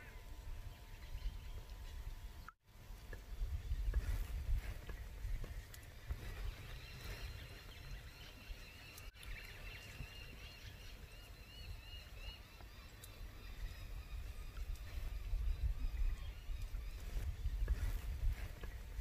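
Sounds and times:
wind rumble on microphone: 0.0 - 19.0
bird chirping: 4.8 - 19.0.

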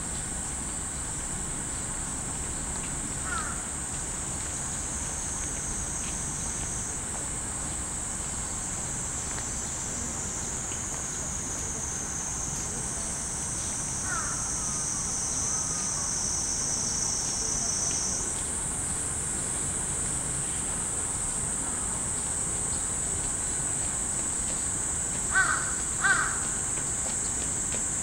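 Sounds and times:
cicadas droning: 0.0 - 28.0
crow cawing: 3.2 - 3.6, 14.0 - 14.5, 25.3 - 26.5.

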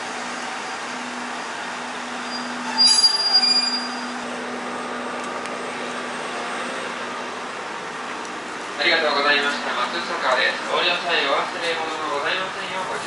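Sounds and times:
diesel railcar idling hum: 0.0 - 13.0
high steady squeal: 1.3 - 4.3.

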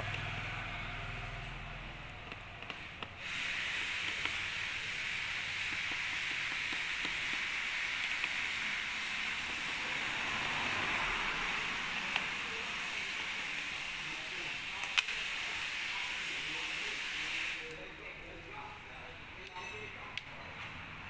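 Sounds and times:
steady hiss: 2.7 - 18.9.

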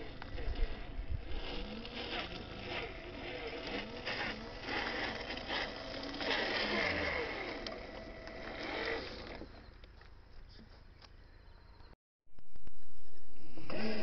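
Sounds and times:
small electric motor whining: 0.0 - 9.9, 13.2 - 14.0.

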